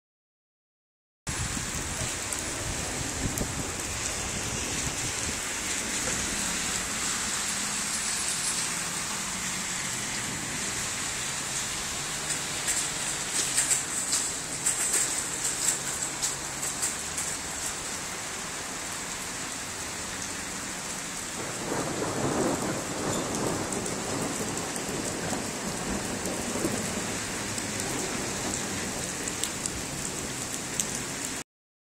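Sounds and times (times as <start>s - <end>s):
thunder rumbling: 1.3s - 16.6s, 21.3s - 30.5s
light rain on pavement: 1.3s - 31.4s.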